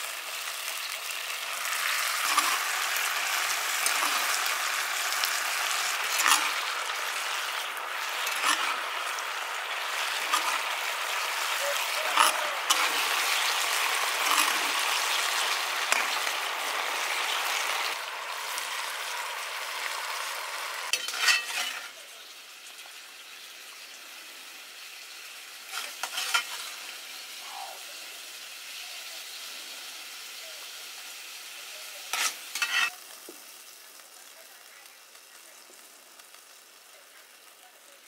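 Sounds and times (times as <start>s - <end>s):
fish sizzling in a wok: 0.0s - 38.0s.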